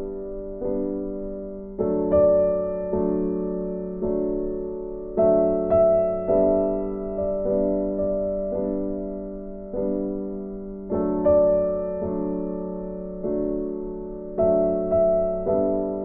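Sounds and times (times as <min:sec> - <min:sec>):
slow piano music: 0:00.0 - 0:16.0.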